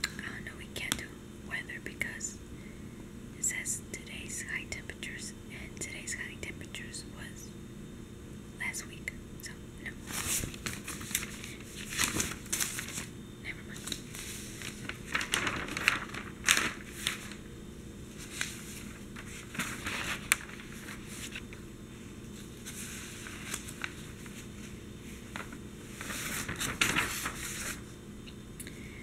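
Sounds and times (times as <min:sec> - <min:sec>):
newspaper pages rustling: 0:10.0 - 0:27.9.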